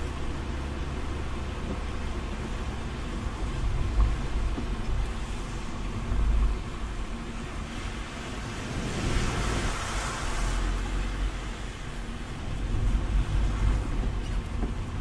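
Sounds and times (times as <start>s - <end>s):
car engine and road rumble: 0.0s - 15.0s
tyre hiss on wet road: 5.0s - 13.9s.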